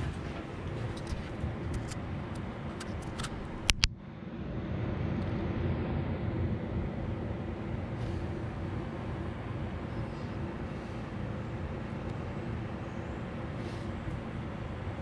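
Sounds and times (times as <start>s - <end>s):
low background rumble: 0.0s - 15.0s
sharp clicks: 1.0s - 3.9s.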